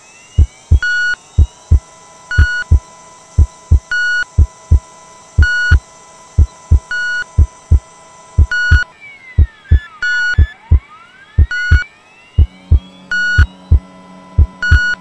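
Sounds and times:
steady electronic tone: 0.0s - 15.0s
heartbeat double thump: 8.4s - 8.8s, 11.4s - 11.8s, 14.4s - 15.0s
short electronic beep: 8.4s - 8.9s, 11.4s - 11.8s, 12.4s - 13.8s, 14.6s - 15.0s.

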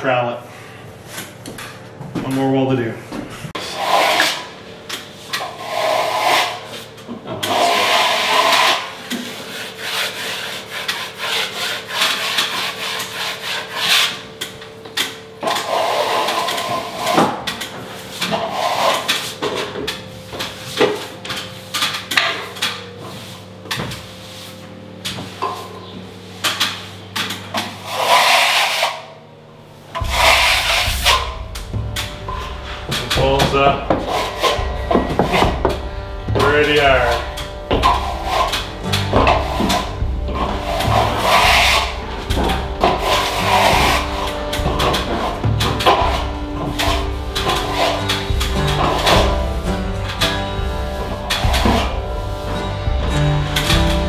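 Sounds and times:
trowel scraping plaster: 3.6s - 4.5s, 5.3s - 14.3s, 15.4s - 17.4s, 18.0s - 19.7s, 27.6s - 29.1s, 36.4s - 49.4s.

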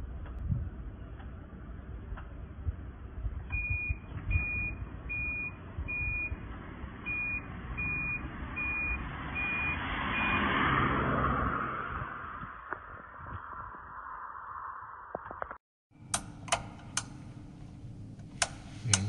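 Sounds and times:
low steady rumble: 0.0s - 8.2s, 16.0s - 19.0s
reversing alarm beeps: 3.5s - 6.4s, 7.0s - 10.4s.

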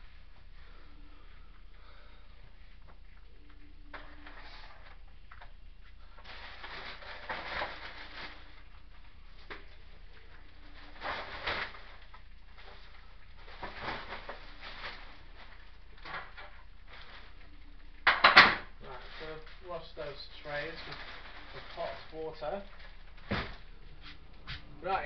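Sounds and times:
plastic packaging rustling: 3.3s - 25.0s.

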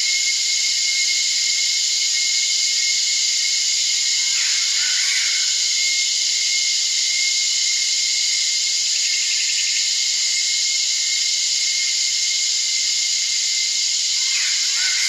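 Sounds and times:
cicadas droning: 0.0s - 15.0s.

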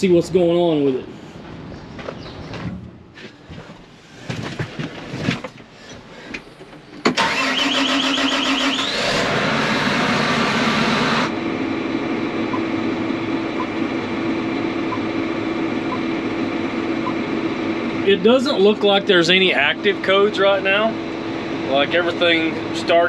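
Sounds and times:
diesel engine starting and idling: 6.3s - 23.0s.

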